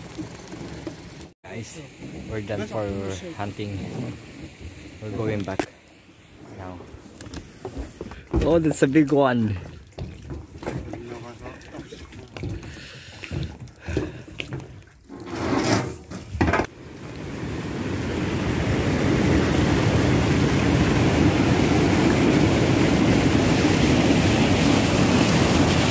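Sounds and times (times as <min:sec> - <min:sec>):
water rushing over rocks: 0:16.7 - 0:25.9.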